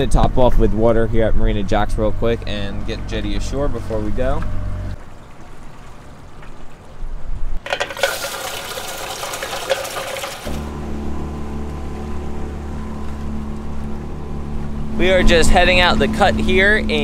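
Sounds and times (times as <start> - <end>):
water rushing and splashing: 5.0 - 17.0
outboard motor running: 7.7 - 17.0.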